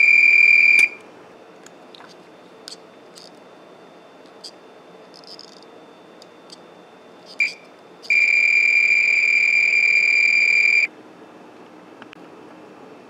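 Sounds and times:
multimeter continuity beep: 0.0s - 1.0s, 7.4s - 10.9s.

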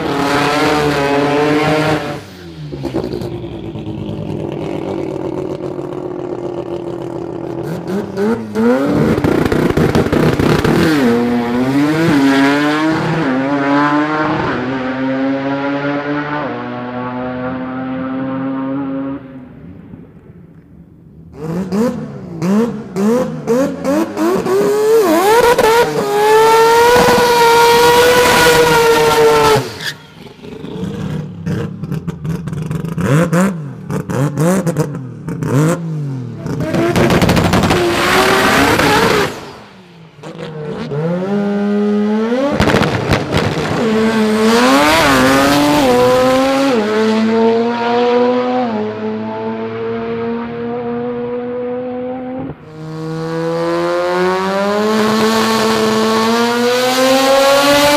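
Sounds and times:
drag car engines at full throttle: 0.0s - 20.7s, 21.3s - 57.9s
crackling exhaust pops: 42.5s - 43.8s.

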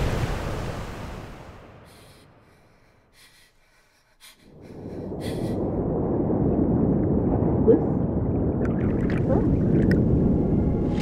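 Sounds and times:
sea surf rushing: 0.0s - 2.2s
faint breaths: 1.8s - 5.8s
low rumble: 4.3s - 11.0s.

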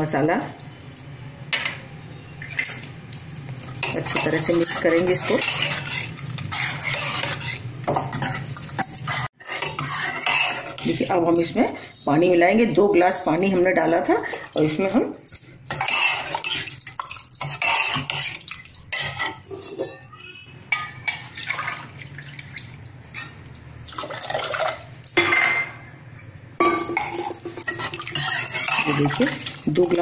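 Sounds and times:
ladle scraping metal pot: 3.7s - 11.5s, 15.6s - 22.0s, 26.6s - 30.0s
water pouring: 16.2s - 18.8s, 21.1s - 25.1s, 27.3s - 30.0s.

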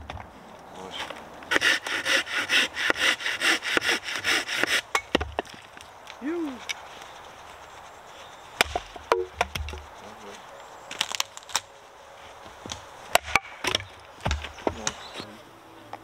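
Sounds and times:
wood being chopped: 1.5s - 5.8s, 8.6s - 9.8s, 12.6s - 15.0s.

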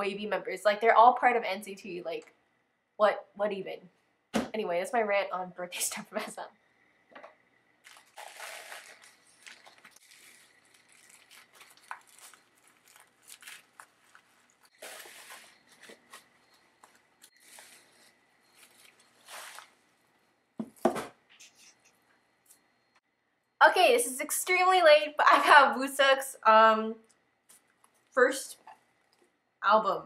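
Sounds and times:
packaging rustling and crinkling: 7.8s - 19.9s.

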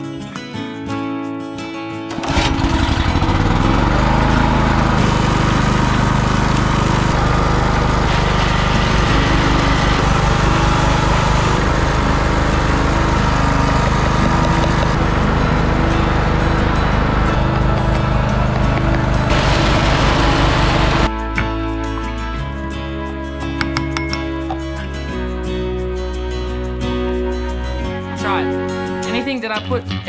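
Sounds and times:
small generator engine running: 2.1s - 21.1s.

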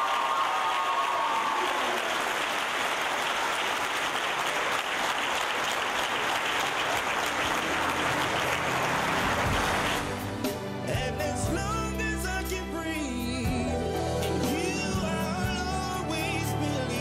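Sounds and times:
crowd applauding: 0.0s - 11.0s
low bass line: 7.6s - 17.0s.

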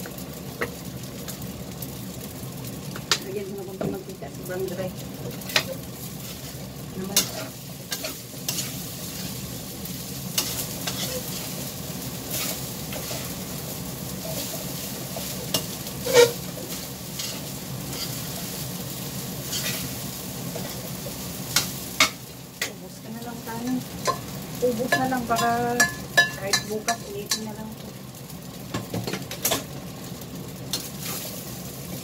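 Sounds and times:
rice sizzling in a wok: 0.0s - 32.0s
spatula knocking and scraping pan: 14.2s - 18.2s.

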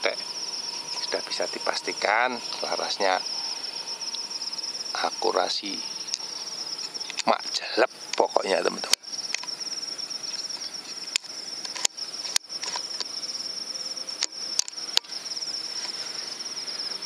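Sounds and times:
insects trilling: 0.0s - 17.0s
sharp clicks: 6.8s - 7.4s, 14.2s - 15.1s.

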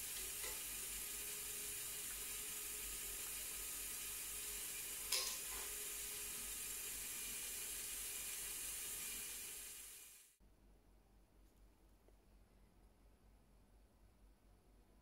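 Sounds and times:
motors and gears whirring: 0.0s - 10.3s.

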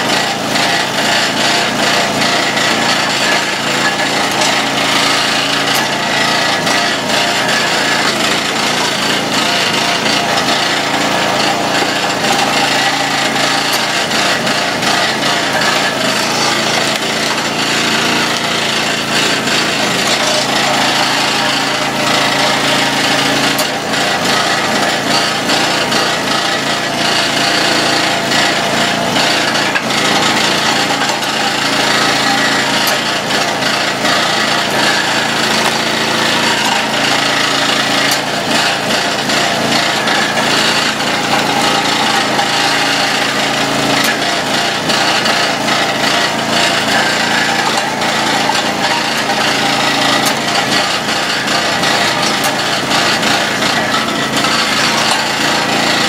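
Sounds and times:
log splitter engine running: 0.0s - 56.0s.

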